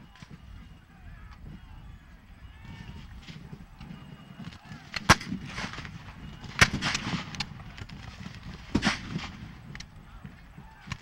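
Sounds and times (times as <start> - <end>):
musket shots with echo: 4.9 - 7.9, 8.6 - 9.6.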